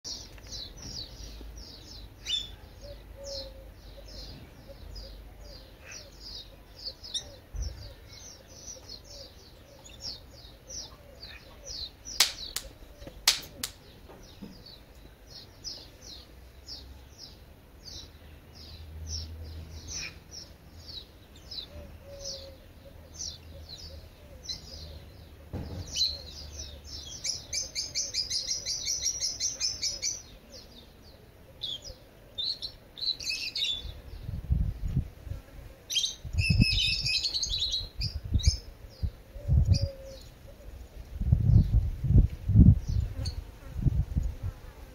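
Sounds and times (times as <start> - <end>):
songbird chirping: 0.0 - 35.0
sharp clicks: 12.2 - 13.8.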